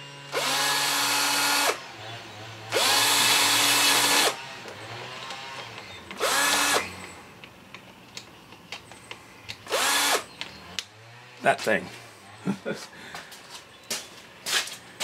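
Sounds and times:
cordless drill whining: 0.0 - 7.2, 9.6 - 10.5.

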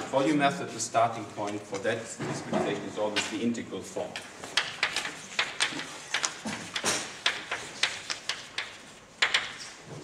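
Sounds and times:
chalk writing on blackboard: 4.5 - 9.6.

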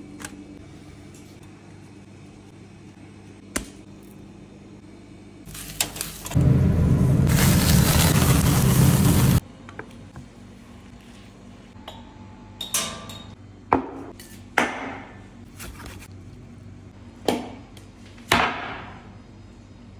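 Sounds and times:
low hum: 6.3 - 9.5.

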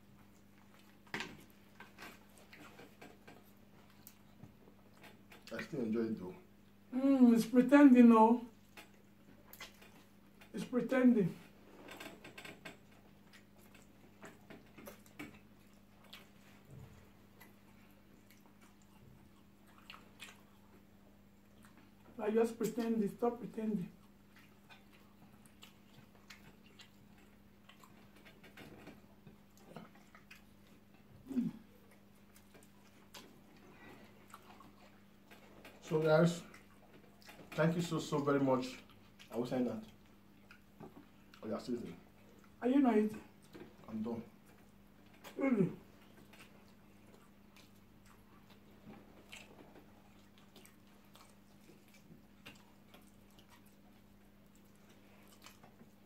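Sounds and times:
low steady hum: 0.0 - 56.0
chewing clicks and smacks: 0.2 - 5.7, 8.6 - 10.5, 11.9 - 16.6, 17.3 - 22.1, 24.0 - 31.1, 31.9 - 37.9, 38.7 - 41.5, 46.0 - 56.0.

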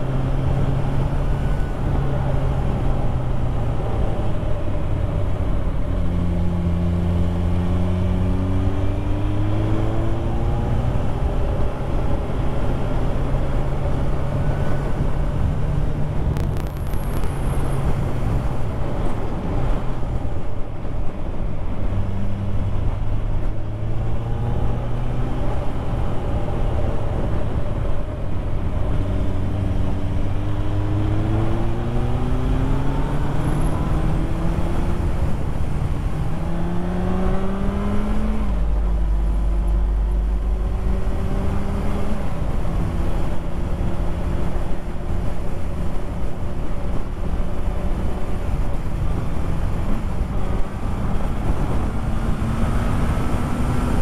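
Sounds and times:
wind and road noise: 0.0 - 54.0
motorcycle engine accelerating: 29.0 - 44.9.

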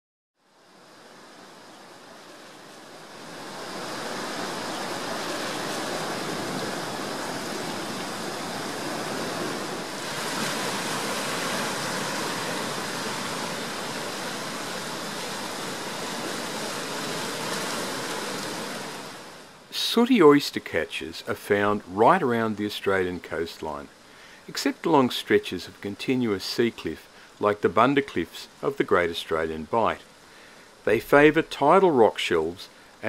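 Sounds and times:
surf breaking on rocks: 2.8 - 20.6.

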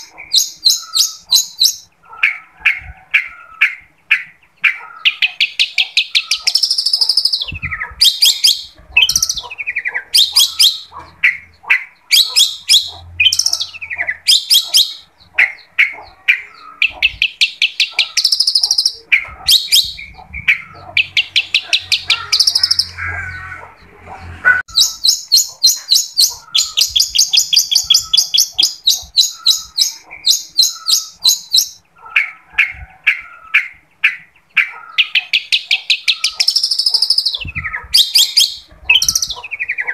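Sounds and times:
bird chattering song: 0.0 - 39.9.

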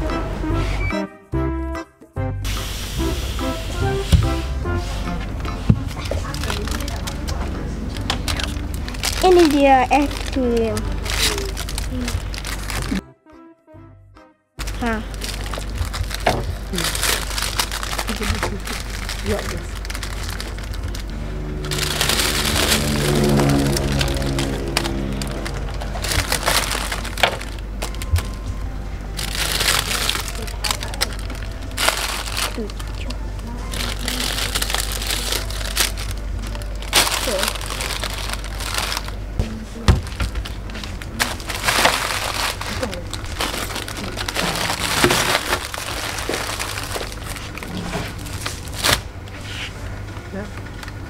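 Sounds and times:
low steady hum: 2.4 - 13.0, 14.6 - 51.0
plastic wrappers crinkling: 5.8 - 13.0, 14.6 - 49.4, 50.2 - 51.0.

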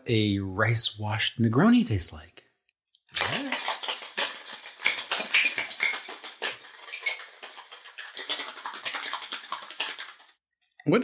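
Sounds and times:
glassware clinking and scraping: 3.2 - 10.3.

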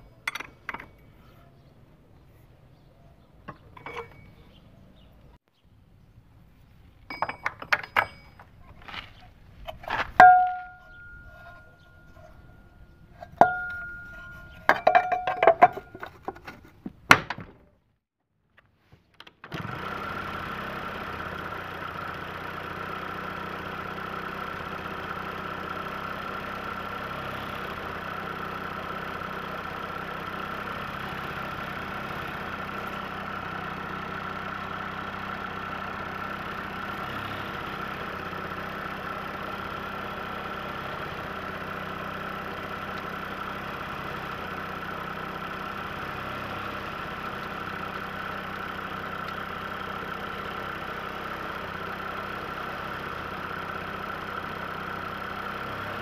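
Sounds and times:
metal parts clinking and knocking: 0.1 - 1.2, 3.5 - 4.4, 7.1 - 12.4, 13.2 - 16.6
scooter engine idling: 7.1 - 16.1, 19.6 - 56.0
ringing metal strikes: 10.2 - 16.0.

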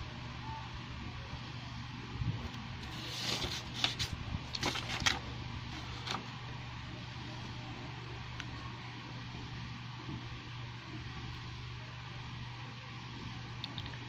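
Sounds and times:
steady low hum: 0.0 - 14.0
compass rustling on paper: 2.8 - 6.4.

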